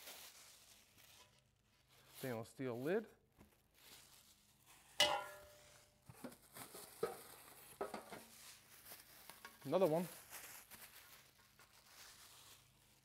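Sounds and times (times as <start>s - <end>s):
plastic bags rustling: 0.0s - 13.0s
metal part clanking: 5.0s - 5.5s.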